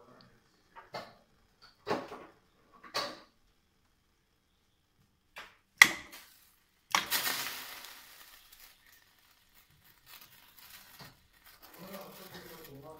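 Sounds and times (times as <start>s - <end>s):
ice cubes splashing into water: 5.8s - 12.4s.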